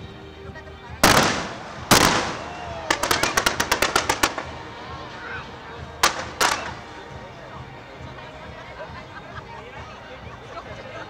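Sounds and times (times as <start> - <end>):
fireworks bangs: 1.0 - 5.0, 6.0 - 7.1
fireworks sharp cracks: 1.0 - 5.0, 6.0 - 7.1.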